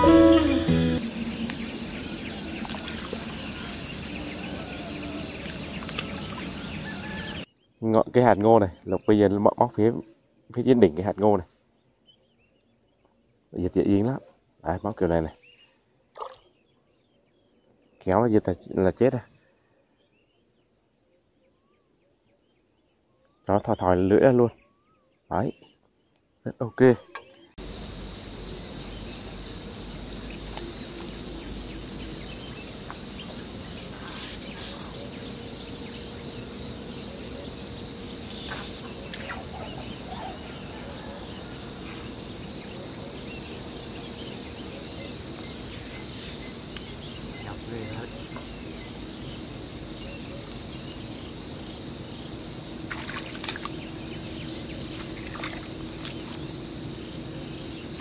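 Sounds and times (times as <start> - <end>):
high-pitched insect chorus: 0.0 - 10.0, 27.6 - 58.0.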